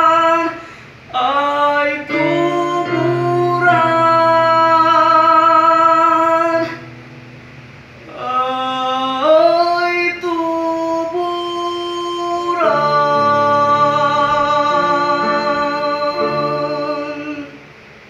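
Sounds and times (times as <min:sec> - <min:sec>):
young man singing: 0:00.0 - 0:06.9, 0:08.0 - 0:17.6
electronic keyboard chords: 0:02.1 - 0:08.2.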